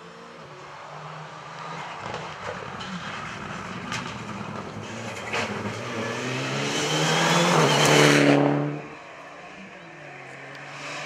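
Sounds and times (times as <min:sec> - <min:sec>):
rally car engine approaching: 0:00.0 - 0:11.0.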